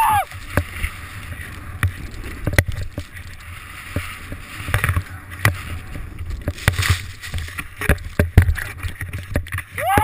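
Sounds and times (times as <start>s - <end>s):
snowboard scraping over snow: 0.0s - 10.0s
wind buffeting microphone: 0.0s - 10.0s
board thumps and clicks: 1.7s - 3.1s, 3.9s - 10.0s.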